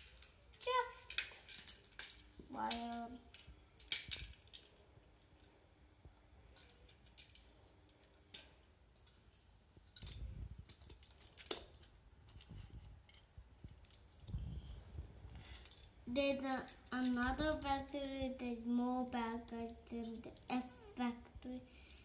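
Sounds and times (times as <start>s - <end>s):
plastic bricks clicking together: 0.0s - 4.8s, 9.9s - 14.4s.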